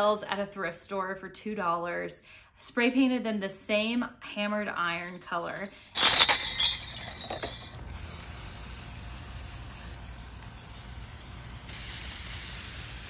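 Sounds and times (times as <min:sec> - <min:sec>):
spray paint can hissing: 0:08.0 - 0:13.0.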